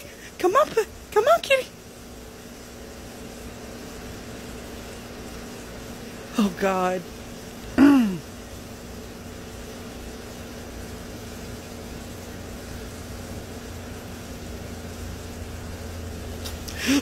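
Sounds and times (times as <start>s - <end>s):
faint constant hum: 0.0s - 17.0s
outdoor rumble and hiss: 0.0s - 17.0s.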